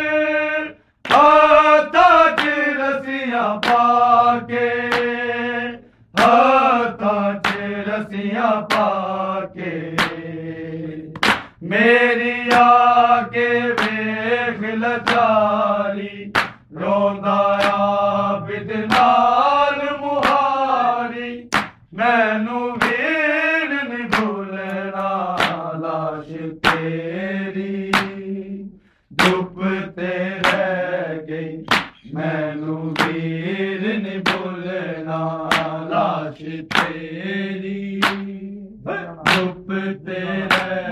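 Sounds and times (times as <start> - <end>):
men chanting a lament: 0.0 - 40.9
chest-beating slaps: 1.0 - 1.4, 2.2 - 2.7, 3.6 - 4.0, 4.8 - 5.2, 6.2 - 6.5, 7.4 - 7.8, 8.7 - 9.0, 9.9 - 10.3, 11.1 - 11.6, 12.5 - 12.9, 13.8 - 14.1, 15.0 - 15.3, 16.3 - 16.7, 17.5 - 17.9, 18.9 - 19.2, 20.2 - 20.6, 21.5 - 21.9, 22.8 - 23.0, 24.1 - 25.8, 26.6 - 27.0, 27.8 - 28.3, 29.1 - 29.5, 30.4 - 30.7, 31.6 - 32.1, 32.9 - 33.3, 34.2 - 34.6, 35.4 - 35.8, 36.7 - 37.0, 38.0 - 38.4, 39.2 - 40.9.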